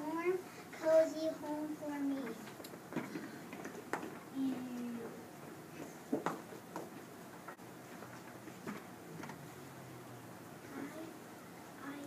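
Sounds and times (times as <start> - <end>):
low room hum: 0.0 - 12.0
child's footsteps on tiled floor: 2.8 - 8.9.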